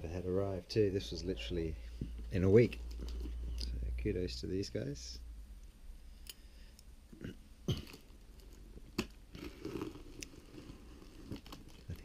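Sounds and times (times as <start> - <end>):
plastic wrap rustling: 7.9 - 12.0.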